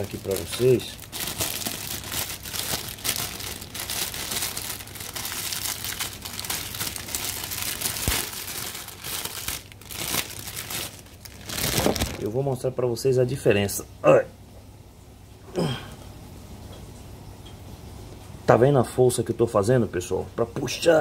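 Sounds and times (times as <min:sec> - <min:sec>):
plastic packaging crinkling: 0:00.0 - 0:12.5.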